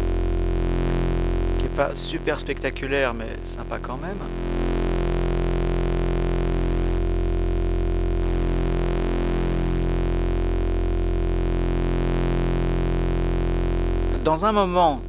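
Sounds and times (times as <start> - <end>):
synthesizer drone: 0.0 - 15.0.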